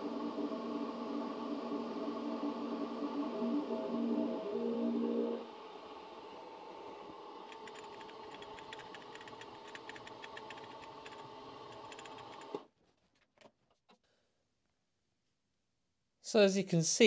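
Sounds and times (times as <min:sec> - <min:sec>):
milling machine motor whine: 0:00.0 - 0:08.4.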